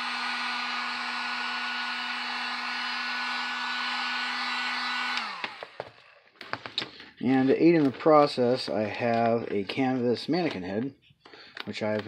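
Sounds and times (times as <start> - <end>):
motor spinning down: 0.0 - 5.8
heat gun fan humming: 0.0 - 6.8.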